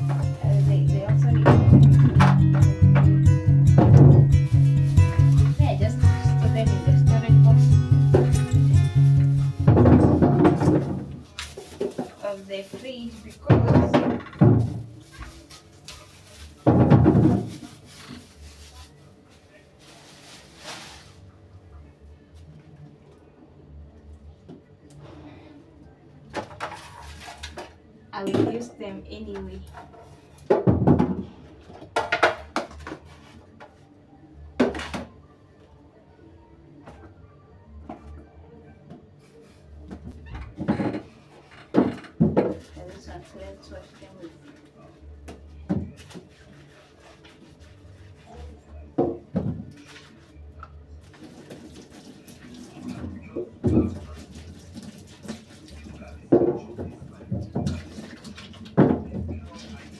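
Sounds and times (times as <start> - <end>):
bowls knocking at a sink: 1.2 - 4.4, 9.6 - 11.2
carrots knocking on sink: 9.6 - 11.1.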